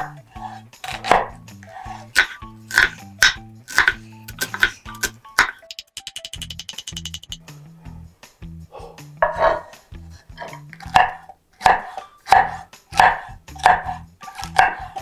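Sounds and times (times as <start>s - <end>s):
knife chopping on wooden board: 0.0s - 5.6s, 9.2s - 9.7s, 10.4s - 15.0s.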